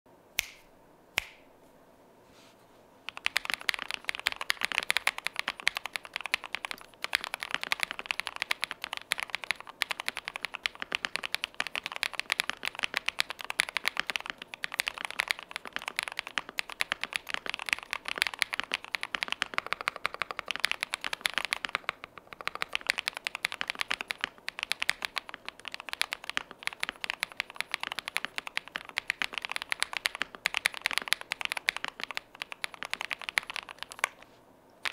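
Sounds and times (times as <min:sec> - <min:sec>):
finger snap: 0:00.4 - 0:01.5
mechanical keyboard typing: 0:03.1 - 0:34.2.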